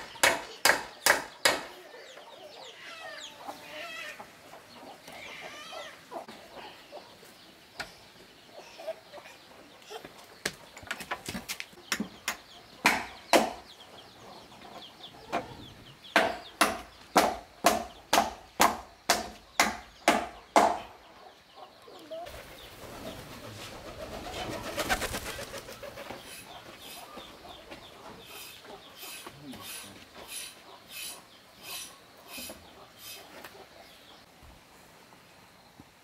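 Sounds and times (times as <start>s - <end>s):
sharp knocks: 0.1s - 1.7s, 16.1s - 20.9s.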